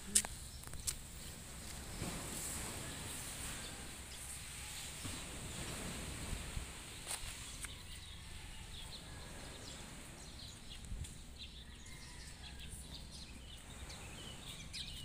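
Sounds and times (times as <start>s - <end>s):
small birds chirping: 6.9s - 15.0s.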